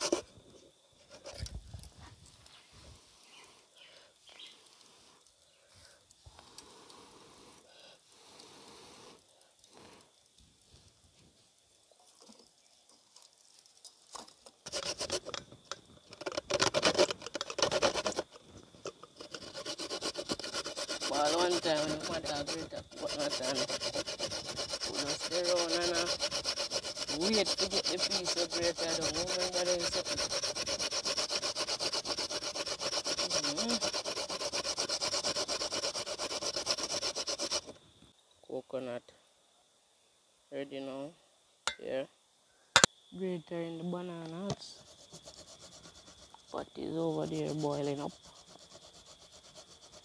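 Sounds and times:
coconut grating on metal grater: 0.0s - 0.2s, 14.7s - 15.4s, 16.1s - 37.7s, 44.8s - 50.0s.

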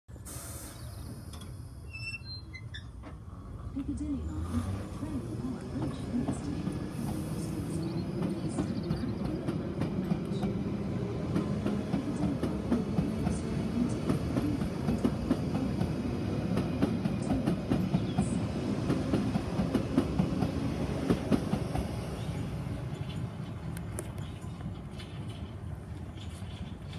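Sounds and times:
train wheels rumbling: 3.0s - 26.9s.

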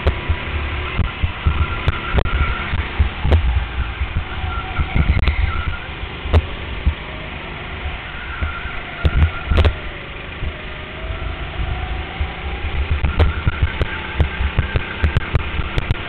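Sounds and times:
kart knocks and rattles: 0.0s - 7.7s, 12.1s - 16.0s
go-kart engine drone: 0.0s - 16.0s.

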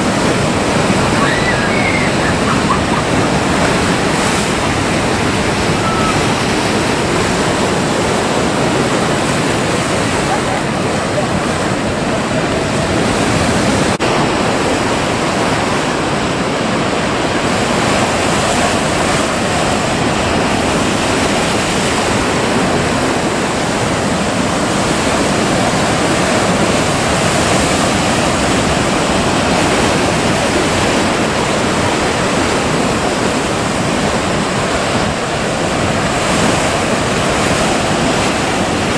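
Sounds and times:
surf breaking on jetty: 0.0s - 38.9s.

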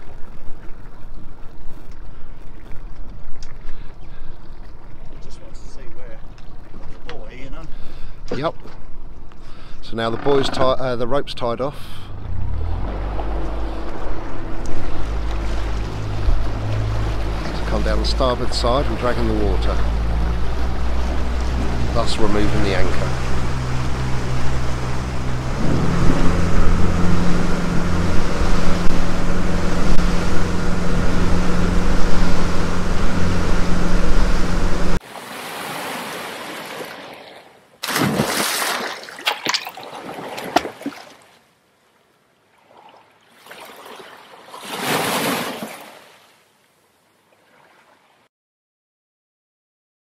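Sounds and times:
rushing water: 0.0s - 8.2s, 12.0s - 48.3s
wind: 0.0s - 48.3s
boat engine running: 9.9s - 35.0s.

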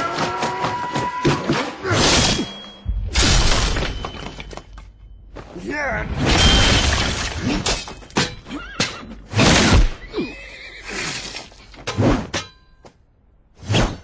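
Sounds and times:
swords swishing and clashing: 13.6s - 14.0s.

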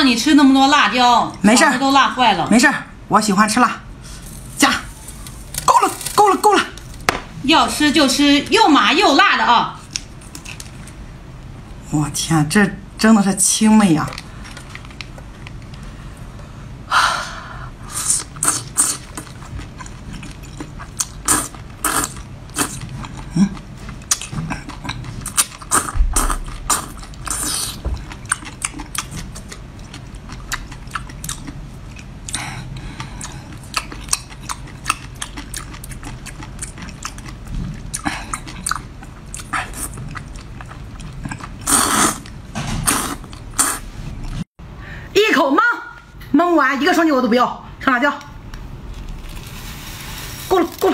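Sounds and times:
wet chewing: 18.2s - 44.4s
slurping: 41.3s - 44.4s.

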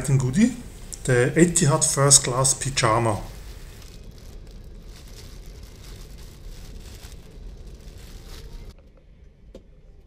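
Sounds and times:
airplane cabin rumble: 0.0s - 8.8s
plastic wrapping crinkling: 0.2s - 8.8s.

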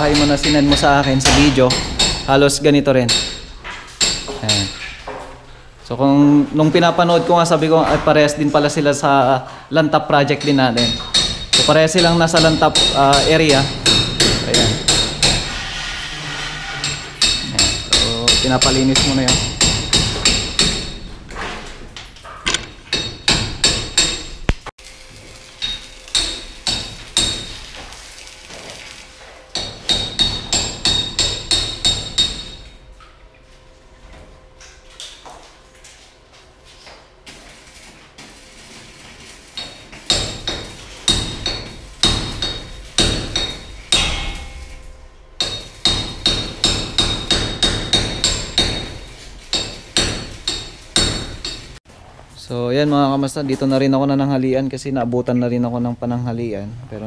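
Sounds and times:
hammer striking metal: 0.0s - 4.9s, 10.3s - 15.6s, 16.8s - 21.2s, 22.5s - 24.6s, 25.6s - 27.6s, 29.6s - 32.8s, 39.6s - 51.8s.

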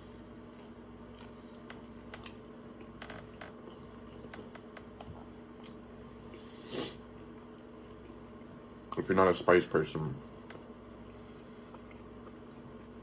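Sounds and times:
person chewing food: 0.0s - 9.0s, 10.4s - 13.0s.

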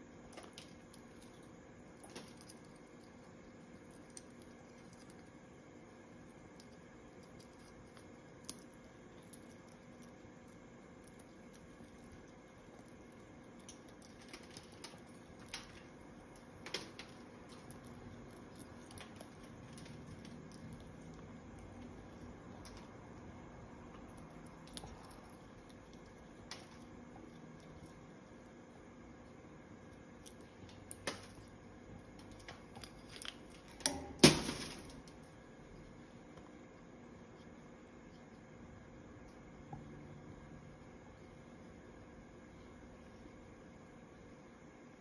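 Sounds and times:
beak crunching nut shell: 0.2s - 5.5s, 6.2s - 23.0s, 23.9s - 28.8s, 29.8s - 35.4s
shell cracking: 6.5s - 20.9s.

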